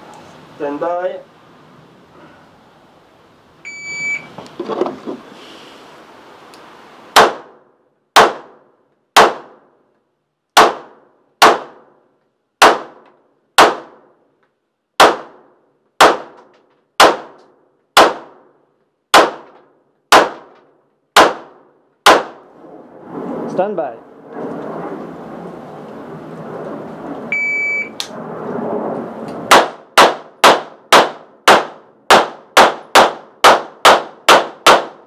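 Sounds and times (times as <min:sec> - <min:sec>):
shot timer beep: 0:03.7 - 0:04.3, 0:27.4 - 0:27.9
pistol shots: 0:07.2 - 0:07.6, 0:08.2 - 0:08.6, 0:09.2 - 0:09.6, 0:10.6 - 0:11.9, 0:12.6 - 0:13.0, 0:13.6 - 0:14.0, 0:15.0 - 0:15.4, 0:16.0 - 0:16.4, 0:17.0 - 0:17.4, 0:18.0 - 0:18.5, 0:19.1 - 0:20.6, 0:21.2 - 0:22.4, 0:29.5 - 0:35.0.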